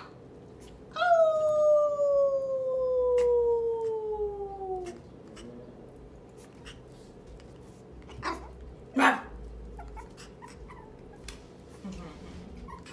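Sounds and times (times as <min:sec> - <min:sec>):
puppy howling: 0:00.9 - 0:05.1.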